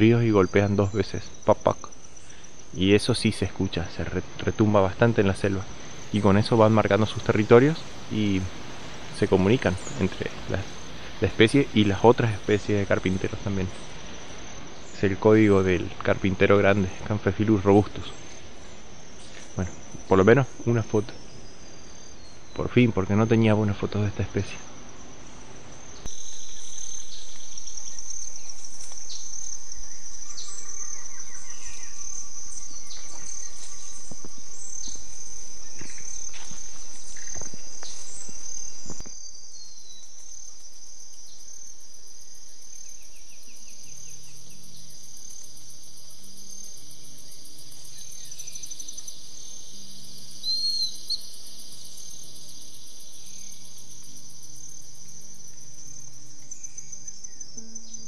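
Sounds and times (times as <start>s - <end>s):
high-pitched insect drone: 4.2s - 15.8s, 25.6s - 58.0s
faint bird chirps: 5.2s - 23.7s, 25.3s - 41.5s, 42.4s - 58.0s.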